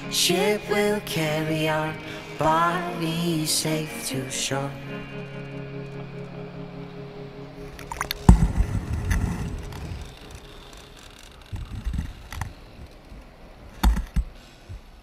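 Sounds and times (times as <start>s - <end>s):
music: 0.0s - 10.8s
muffled rushing water: 7.7s - 10.8s.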